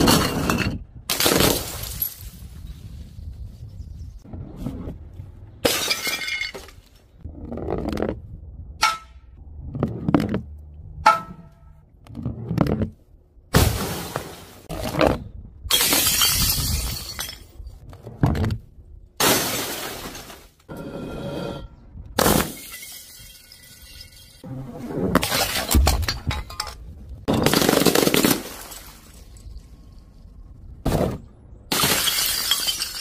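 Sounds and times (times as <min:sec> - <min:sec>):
glass breaking: 0:05.6 - 0:06.7, 0:31.7 - 0:33.0.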